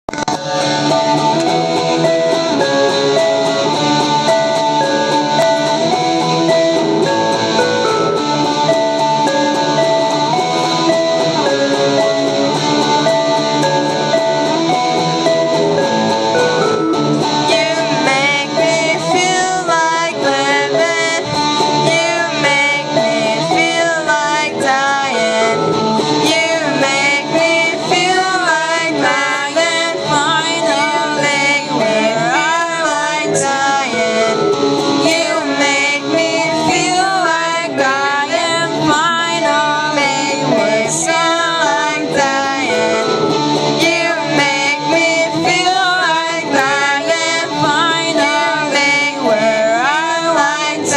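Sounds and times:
electric guitar: 0.0 - 50.9
keyboard: 0.0 - 50.9
woman singing: 17.4 - 50.9.

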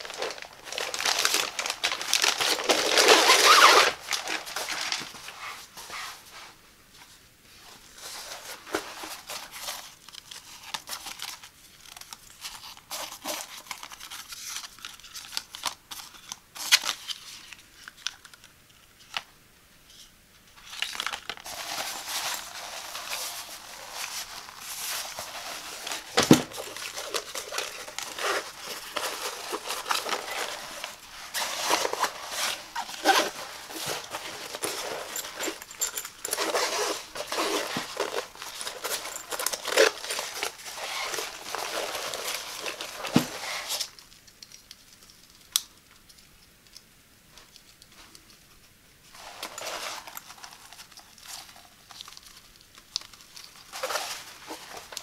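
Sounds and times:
fabric rustling and scratching: 0.0 - 12.0, 21.2 - 44.0, 49.1 - 52.4, 53.0 - 55.0.

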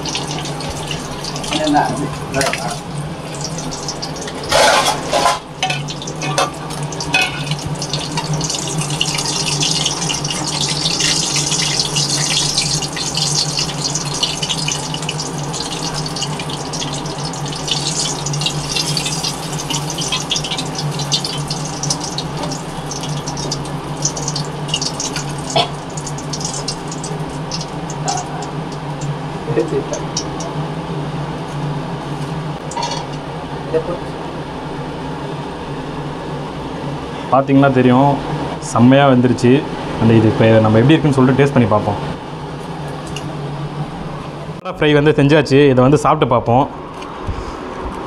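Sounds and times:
hot oil sizzling: 0.0 - 30.9
steady low hum: 0.0 - 48.0.

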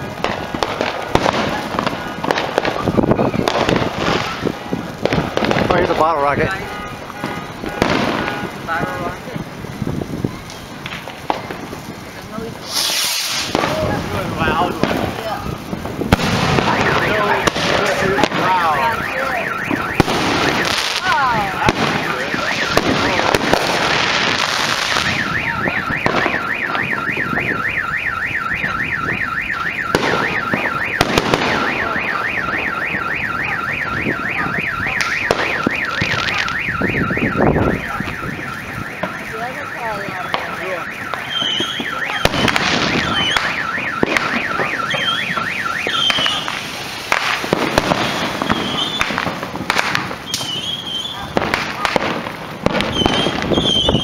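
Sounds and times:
firework bangs and crackles: 0.0 - 54.0
car alarm warbling siren: 16.4 - 49.4, 50.0 - 54.0.

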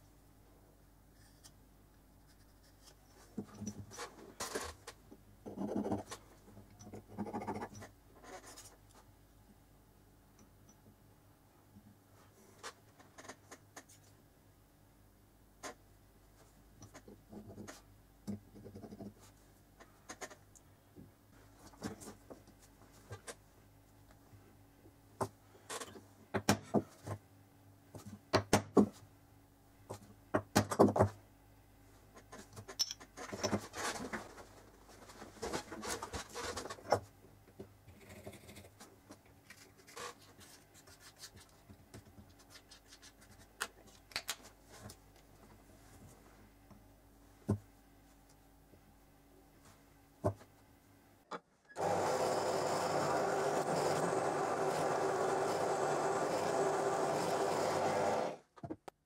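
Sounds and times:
metal tools clicking and tapping: 32.7 - 33.6.

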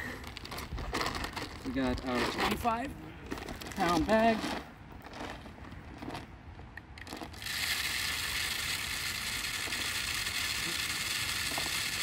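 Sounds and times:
birdseed pouring through funnel: 7.4 - 12.0.

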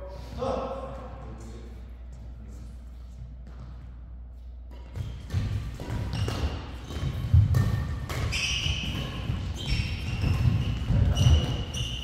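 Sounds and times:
racket hitting shuttlecock: 4.7 - 11.7
shoe squeaks on court: 5.0 - 12.0.

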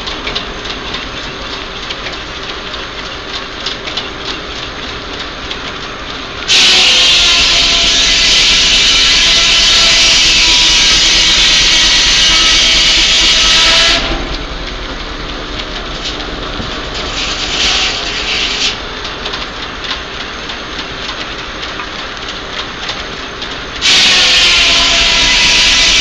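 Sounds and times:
clattering mill machinery: 0.0 - 26.0
saw whining through log: 6.5 - 14.2, 16.9 - 18.8, 23.8 - 26.0.

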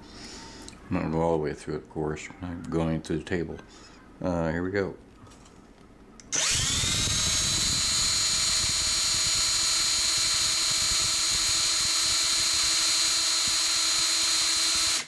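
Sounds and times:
cordless drill whining: 6.3 - 15.0.

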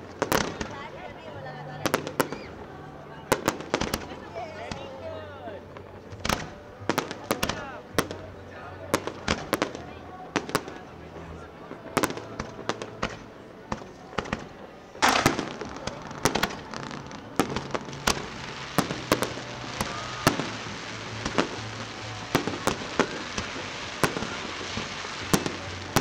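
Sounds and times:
fireworks crackling: 0.0 - 2.7, 3.3 - 4.9, 5.7 - 26.0
firework bangs: 11.9 - 26.0.

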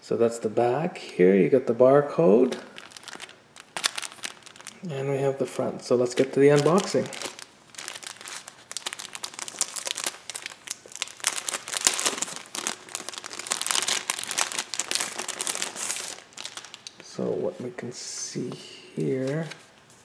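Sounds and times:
plastic bag crinkling: 2.4 - 4.9, 6.0 - 17.2.

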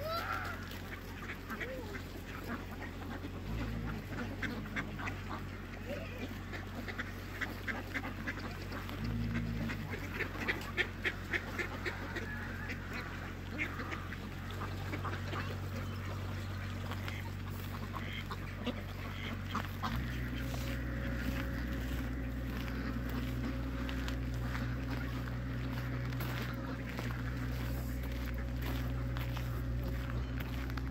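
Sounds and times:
ducks quacking: 0.0 - 30.9
steady low rumble: 0.0 - 30.9.

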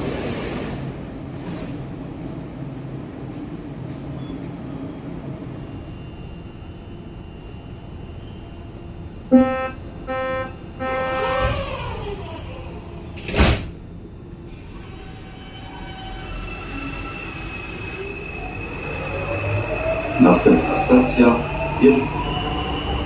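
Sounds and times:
train hum: 0.0 - 23.0
warning beeps: 5.5 - 11.8
sliding doors closing with thump: 13.2 - 13.8.

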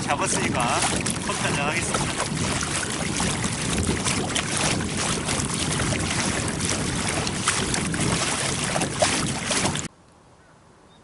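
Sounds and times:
water lapping against hull: 0.0 - 9.9
wind noise on microphone: 0.0 - 9.9.

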